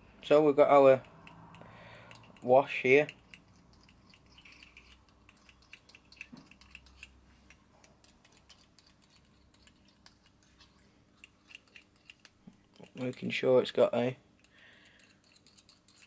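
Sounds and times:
small bottle clicking and tapping: 1.0 - 10.4.

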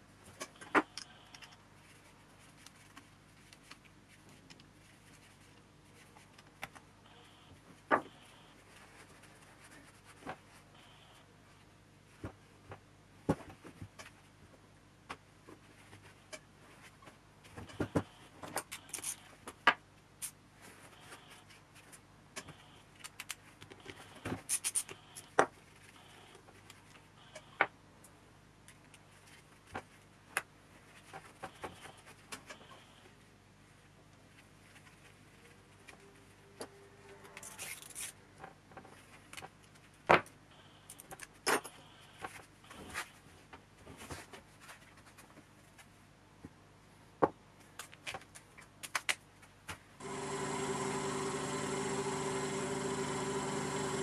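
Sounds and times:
small metal parts clicking and scraping: 37.3 - 38.2.

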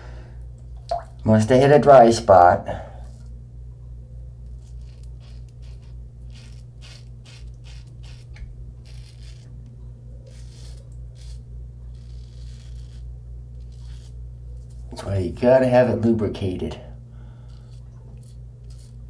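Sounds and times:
steady low hum: 0.0 - 19.0
razor scraping through stubble: 4.4 - 14.9, 17.4 - 19.0.

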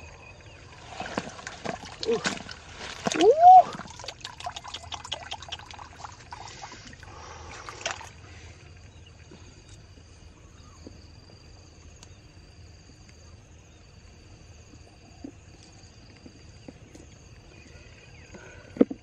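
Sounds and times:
water splashing and dribbling: 0.0 - 8.6.

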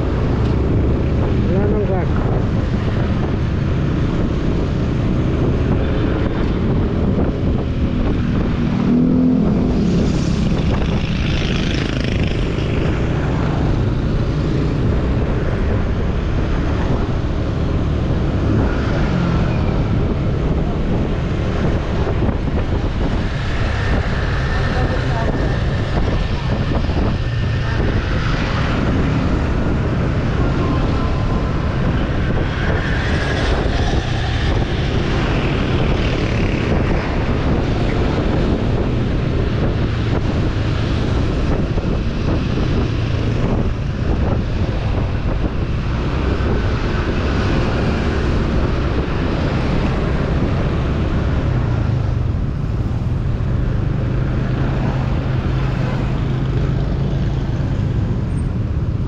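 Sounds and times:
road noise: 0.0 - 59.0.

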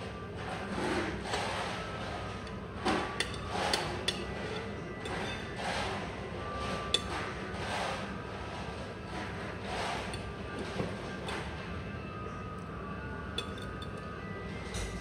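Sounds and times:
restaurant background hum: 0.0 - 15.0
fork clinking on ceramic plate: 13.4 - 14.0.

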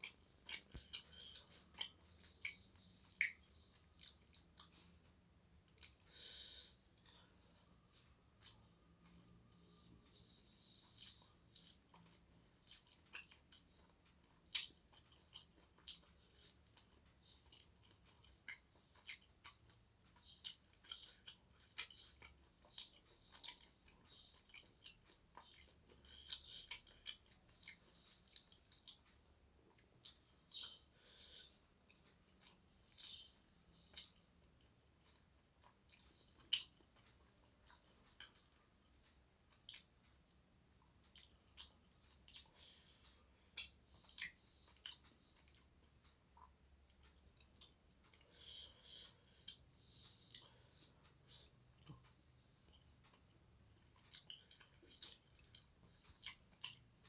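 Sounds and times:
person chewing food: 0.0 - 57.0.

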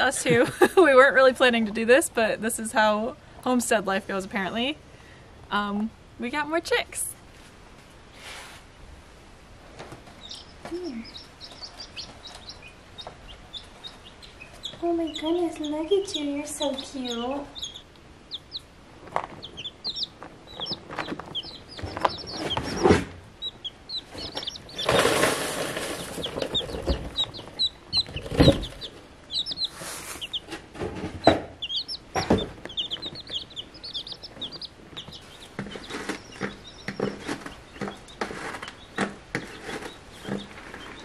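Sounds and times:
rustling noise: 7.2 - 8.8, 20.2 - 23.2, 24.1 - 31.3, 34.8 - 41.0
baby chicks peeping: 9.7 - 41.0
knocks: 30.5 - 33.4.

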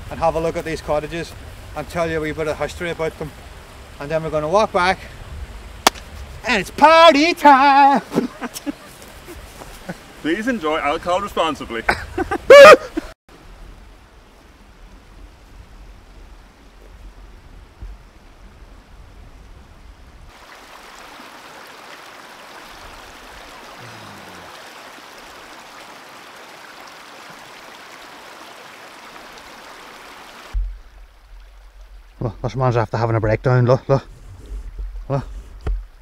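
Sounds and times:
stream babbling over rocks: 20.3 - 33.1.

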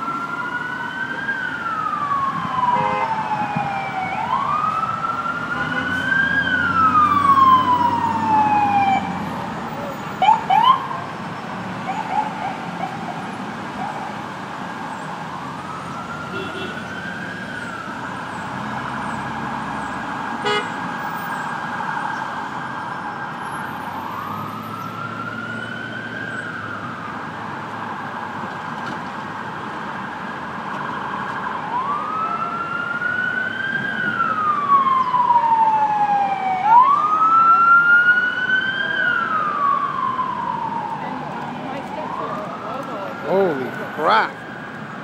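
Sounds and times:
steady siren tone: 0.0 - 9.2, 30.8 - 44.8
sirens wailing: 0.0 - 45.0.

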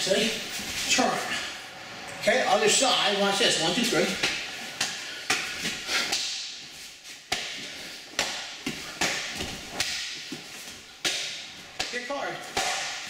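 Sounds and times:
karate kicks slapping and thudding: 11.0 - 13.0.

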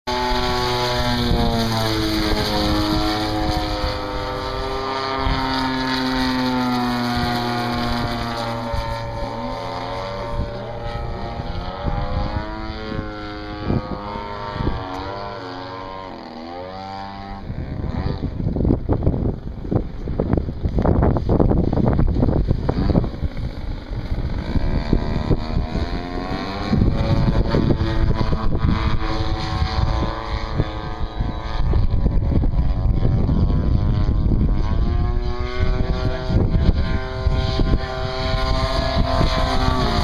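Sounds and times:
model plane propeller whine: 0.1 - 40.0
wind buffeting microphone: 0.1 - 40.0.

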